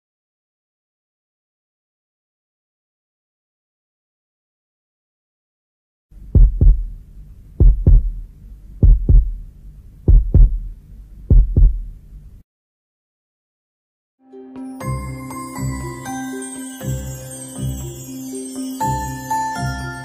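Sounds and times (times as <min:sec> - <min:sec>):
low hum: 0:06.2 - 0:12.4
heartbeat lub-dub beats: 0:06.3 - 0:12.1.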